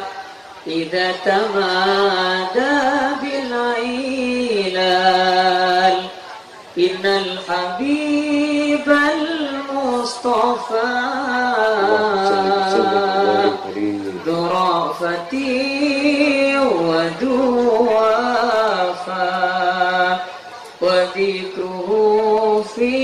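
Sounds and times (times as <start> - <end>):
man chanting into a microphone: 11.3 - 14.5.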